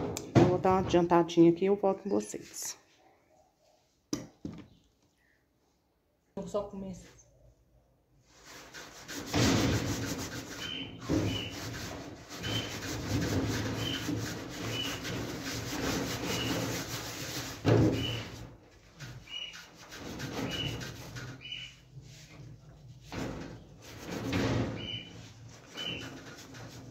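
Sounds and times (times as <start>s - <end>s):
scrubbing greasy sheet metal: 8.2s - 26.9s.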